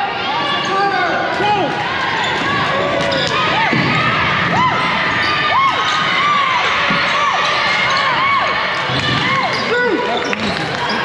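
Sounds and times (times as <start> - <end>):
crowd noise: 0.0 - 11.0
sneakers squeaking on gym floor: 2.1 - 3.9.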